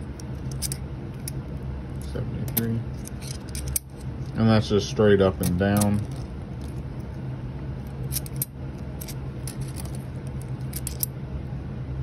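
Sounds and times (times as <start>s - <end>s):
steady low hum: 0.0s - 12.0s
coins clicking and clinking: 0.3s - 1.4s, 2.5s - 4.0s, 8.0s - 11.1s.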